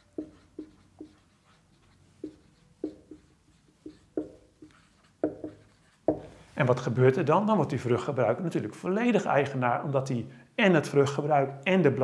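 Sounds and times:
marker writing on whiteboard: 0:00.0 - 0:06.5.

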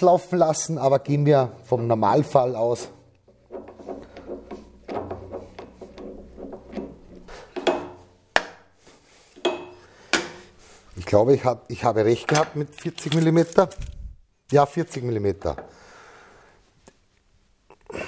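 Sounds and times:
metal clanks: 0:03.3 - 0:08.5
wrench clinking on metal table: 0:12.2 - 0:13.2.

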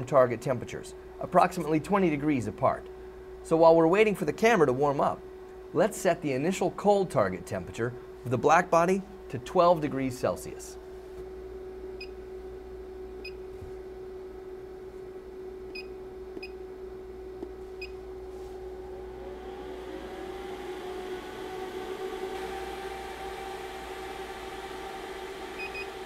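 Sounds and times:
equipment hum: 0:00.0 - 0:26.0
whir rising in pitch: 0:18.2 - 0:26.0.

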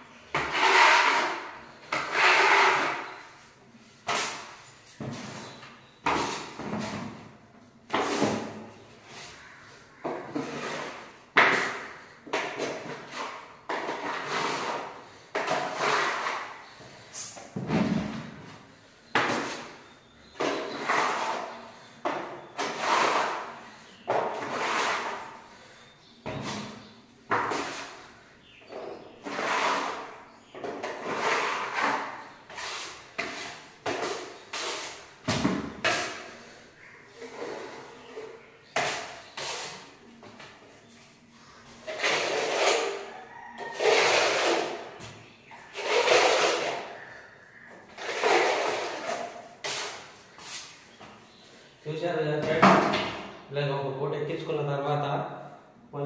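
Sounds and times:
putty blade scraping wall: 0:00.3 - 0:03.4, 0:07.9 - 0:18.3, 0:19.1 - 0:40.0, 0:41.7 - 0:47.1, 0:47.8 - 0:50.7.

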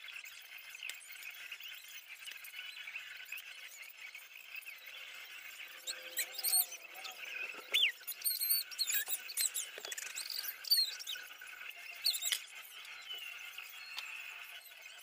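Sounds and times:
plastic bricks squeaking: 0:07.6 - 0:11.2, 0:12.0 - 0:12.5.

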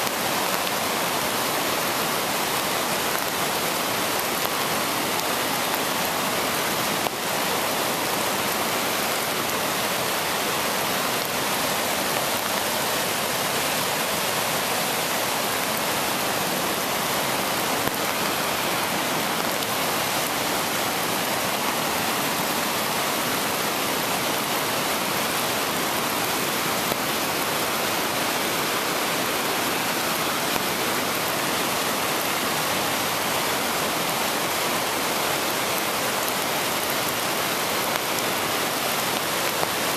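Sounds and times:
river water rushing: 0:00.0 - 0:39.9.

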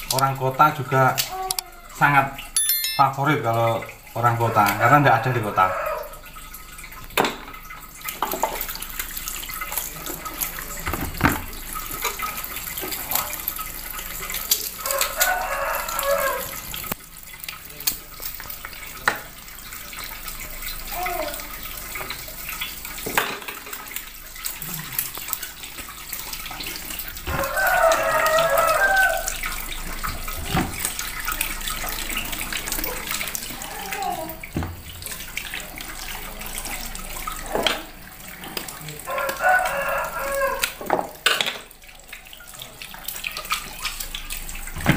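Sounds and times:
tap running into a sink: 0:07.0 - 0:13.3, 0:19.0 - 0:19.4, 0:25.1 - 0:32.9, 0:34.4 - 0:38.8, 0:43.4 - 0:44.9.

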